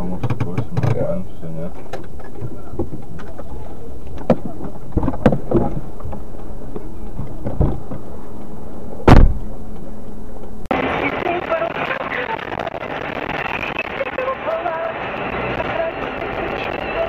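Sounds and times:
car engine rumble: 0.0 - 17.0
loud thump: 9.0 - 9.5.

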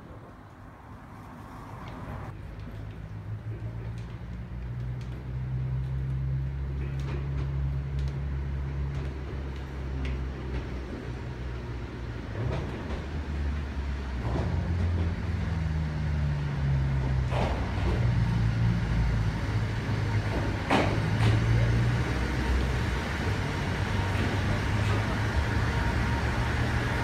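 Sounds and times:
diesel railcar engine drone: 0.0 - 27.0
sharp sounds from train: 6.9 - 27.0.

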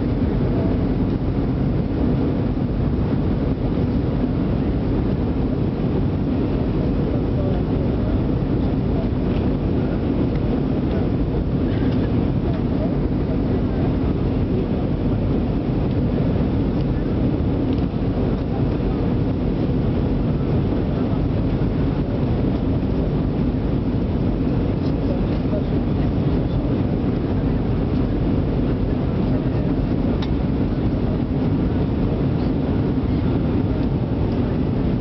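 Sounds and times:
airliner cabin rumble: 0.0 - 35.0.

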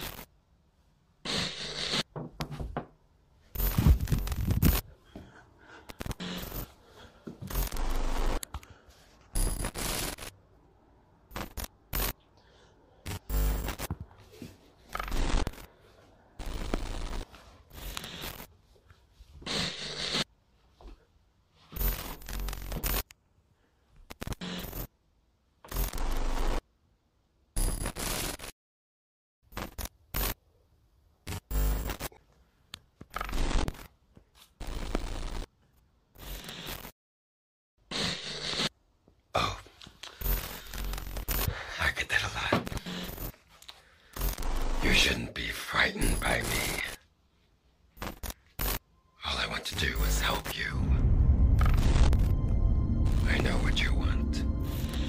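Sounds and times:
glitchy static bursts: 0.0 - 0.3, 1.2 - 2.1, 3.6 - 4.8, 5.9 - 6.7, 7.5 - 8.4, 9.4 - 10.4, 11.2 - 12.2, 13.1 - 14.0, 14.9 - 15.7, 16.4 - 18.5, 19.5 - 20.3, 21.8 - 23.0, 24.1 - 24.9, 25.7 - 26.6, 27.6 - 28.5, 29.5 - 30.4, 31.3 - 32.2, 33.2 - 33.9, 34.6 - 35.5, 36.2 - 36.9, 40.2 - 43.4, 44.2 - 45.4, 46.0 - 47.0, 48.0 - 48.8, 49.4 - 55.0.

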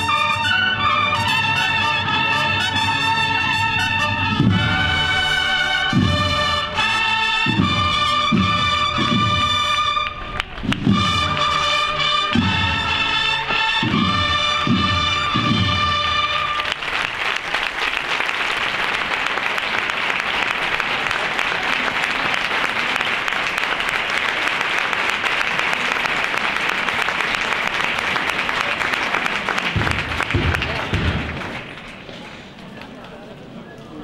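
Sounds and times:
brass band with drums playing march: 0.0 - 16.9, 29.6 - 31.7
crowd applauding: 9.8 - 12.0, 13.1 - 33.5.

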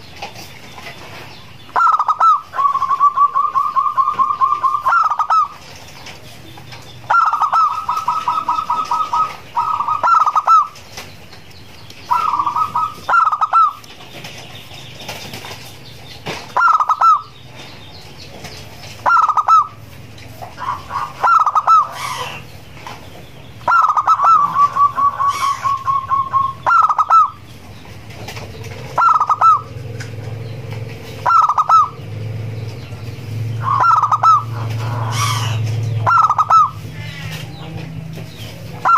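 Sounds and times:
dove cooing: 1.7 - 11.0, 12.1 - 14.3, 16.5 - 17.4, 19.0 - 22.6, 23.6 - 30.4, 31.1 - 32.3, 33.5 - 37.8, 38.6 - 38.9.

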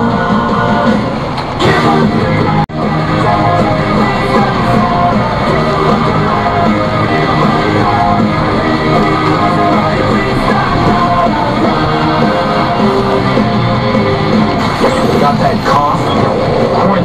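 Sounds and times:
rock song on car radio: 0.0 - 17.0.

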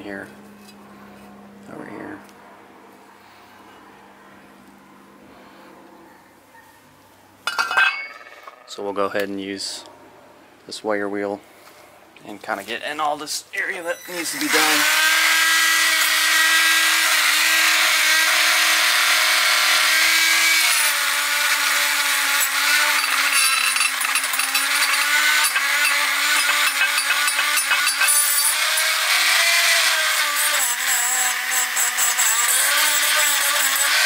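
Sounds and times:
rotary tool whining: 13.6 - 34.0
wire bristles rasping on metal: 22.4 - 34.0.

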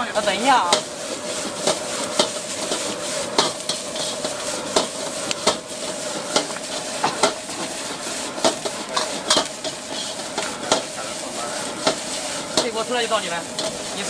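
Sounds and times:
food sizzling: 0.0 - 14.0.

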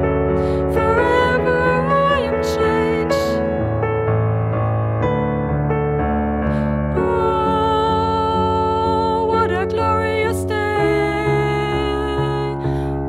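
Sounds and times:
keyboard chords: 0.0 - 13.0
person singing: 0.4 - 3.6, 6.9 - 13.0
worship song: 0.5 - 3.7.

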